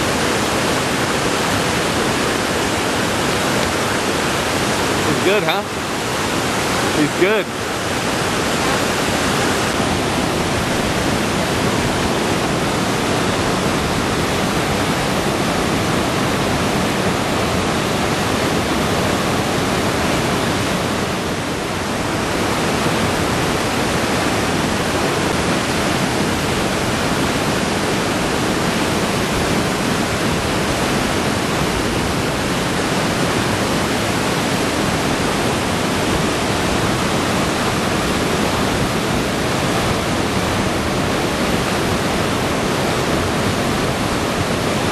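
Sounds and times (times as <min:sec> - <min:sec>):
rapids rushing over rocks: 0:00.0 - 0:44.9.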